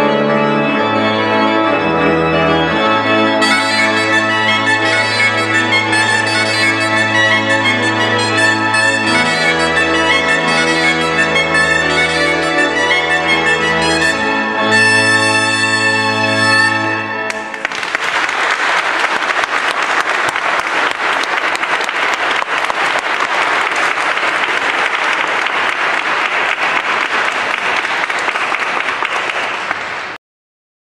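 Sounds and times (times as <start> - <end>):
audience applauding: 17.3 - 30.2.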